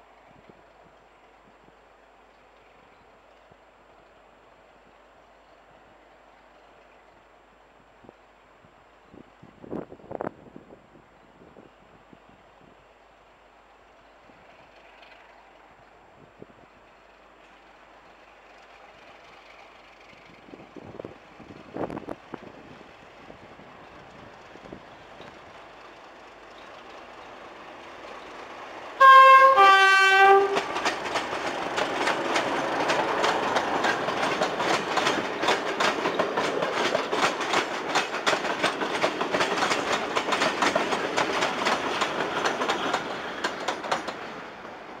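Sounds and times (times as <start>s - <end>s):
train wheels clickety-clack: 14.2s - 16.0s, 16.9s - 45.0s
locomotive two-tone horn: 29.0s - 30.8s.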